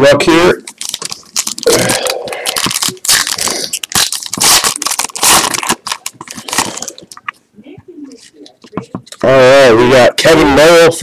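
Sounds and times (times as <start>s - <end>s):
foil pack tearing and crinkling: 0.7s - 7.2s.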